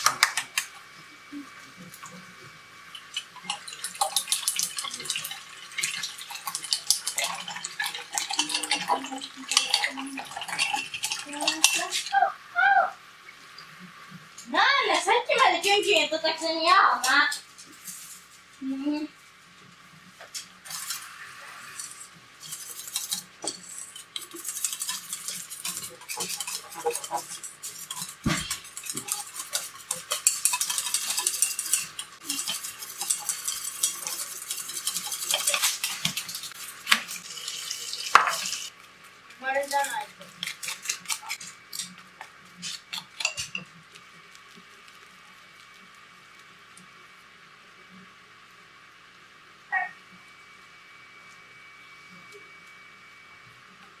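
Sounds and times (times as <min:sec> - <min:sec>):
whisk clicking in metal bowl: 0:03.0 - 0:12.0, 0:22.4 - 0:37.2, 0:39.7 - 0:43.7.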